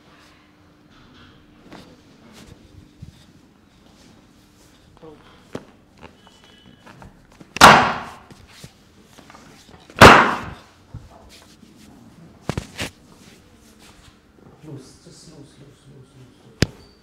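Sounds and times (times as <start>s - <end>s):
loud thuds on treatment table: 7.6s - 8.3s, 10.0s - 10.6s.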